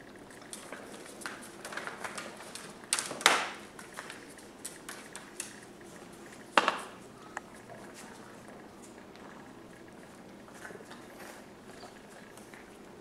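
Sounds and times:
puppy claws clicking on tile: 0:00.5 - 0:05.6.

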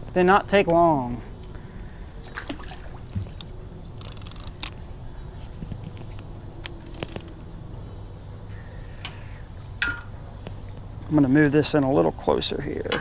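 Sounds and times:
insect chorus droning: 0:00.0 - 0:13.0
fishing reel clicks and ratcheting: 0:04.0 - 0:04.7.

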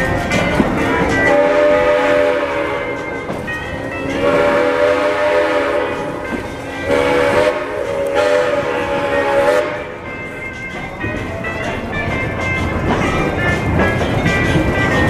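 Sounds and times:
steam locomotive whistle blasts: 0:00.8 - 0:03.3, 0:04.0 - 0:10.1.

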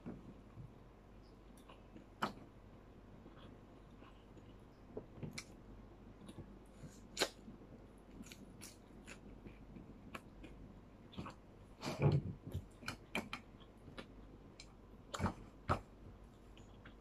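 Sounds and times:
person chewing: 0:05.3 - 0:17.0.

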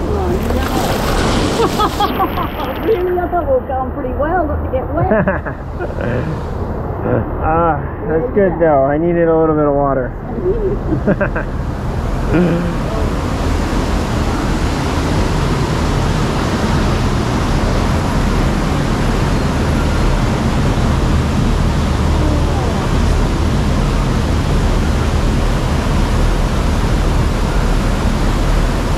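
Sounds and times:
rushing water: 0:00.0 - 0:04.5, 0:10.3 - 0:28.9.

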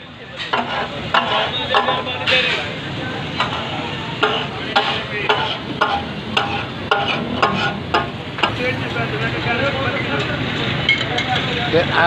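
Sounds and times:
metal spatulas clacking on griddle: 0:00.4 - 0:02.6, 0:03.4 - 0:08.6.

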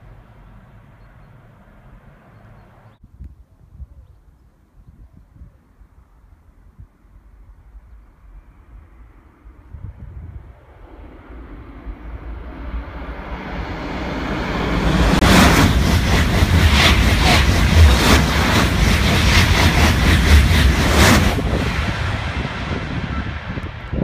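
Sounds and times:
high-speed train passing: 0:00.0 - 0:03.0, 0:08.4 - 0:24.0.

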